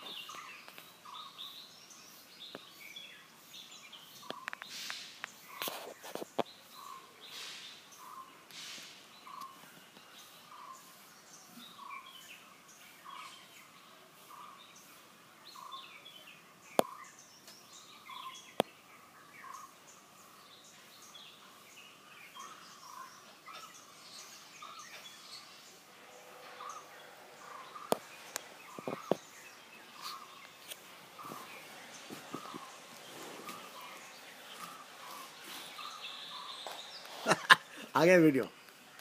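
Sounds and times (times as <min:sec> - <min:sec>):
birds chirping: 0:00.0 - 0:39.0.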